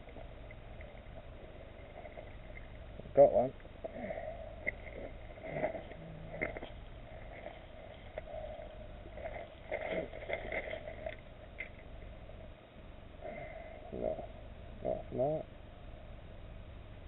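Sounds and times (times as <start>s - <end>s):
gravel crunching: 0.0s - 12.2s
low rumble and hiss: 0.0s - 17.0s.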